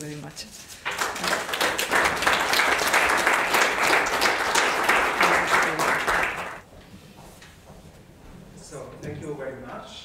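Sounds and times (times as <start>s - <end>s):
audience applauding: 0.8s - 6.6s.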